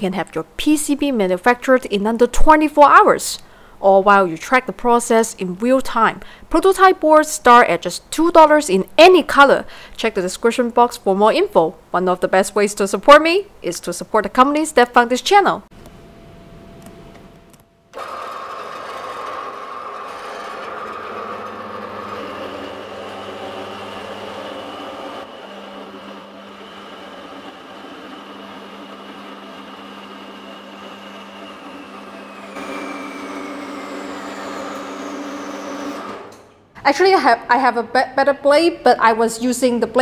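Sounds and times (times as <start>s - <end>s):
bandsaw whine: 17.9s - 36.5s.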